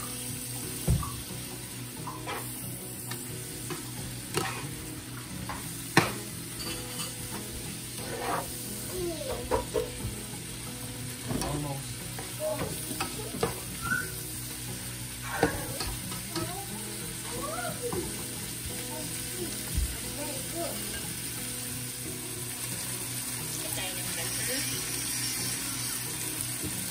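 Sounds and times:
meat and onions sizzling in a pan: 0.0s - 26.9s
spatula scraping a pan: 2.0s - 2.6s, 4.3s - 4.8s, 6.0s - 8.7s.

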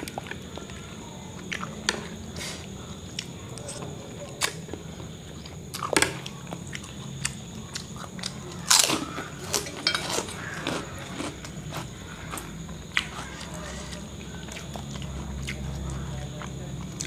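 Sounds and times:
chewing noodles: 0.0s - 17.0s
spoon and chopsticks clicking on dishes: 9.5s - 10.9s.

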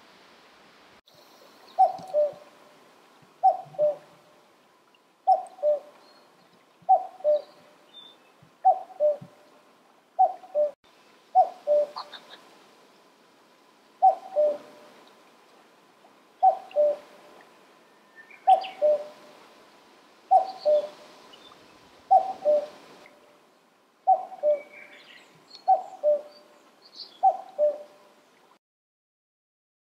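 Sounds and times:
cuckoo calling: 1.7s - 2.4s, 3.4s - 4.1s, 5.2s - 6.3s, 6.9s - 9.4s, 10.2s - 12.4s, 14.0s - 14.8s, 16.4s - 17.0s, 17.9s - 19.2s, 20.3s - 22.8s, 24.0s - 28.0s.

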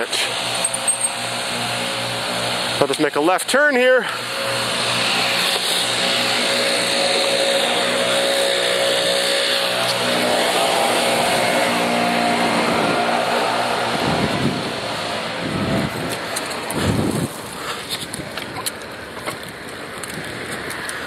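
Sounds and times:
road noise: 0.0s - 21.0s
vehicle engine running: 4.0s - 21.0s
wind buffeting microphone: 11.2s - 21.0s.

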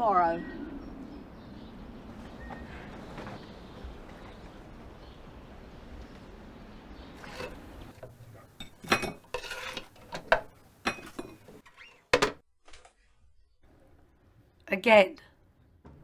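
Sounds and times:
faint outdoor background: 0.0s - 16.0s
dishes and utensils clinking: 7.2s - 11.6s.

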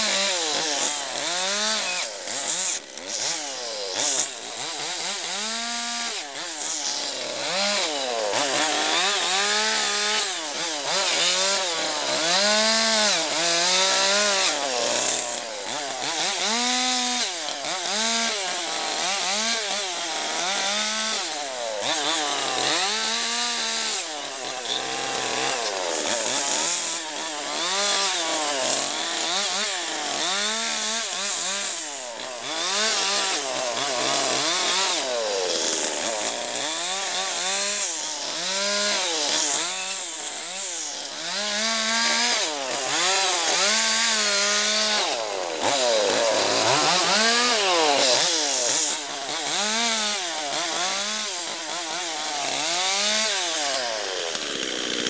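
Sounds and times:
chainsaw cutting into log: 0.0s - 55.0s
chainsaw revving: 0.0s - 55.0s.

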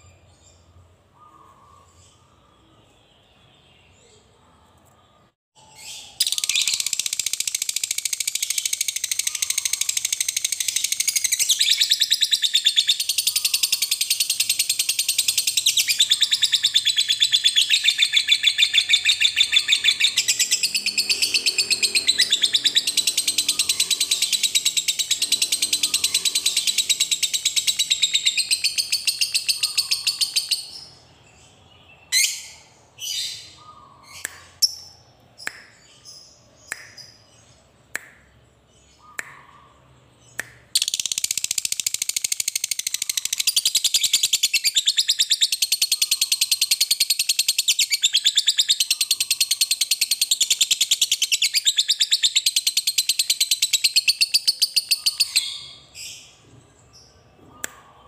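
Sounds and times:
sharp bird chirps: 1.1s - 56.4s
lovebird chattering trill: 6.2s - 30.9s, 40.8s - 55.7s.

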